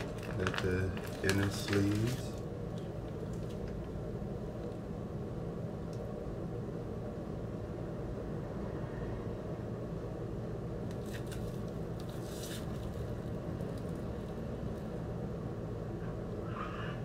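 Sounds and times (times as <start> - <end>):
plastic shrink wrap crinkling: 0.0 - 3.8, 11.0 - 14.0
low background hum: 0.0 - 17.0.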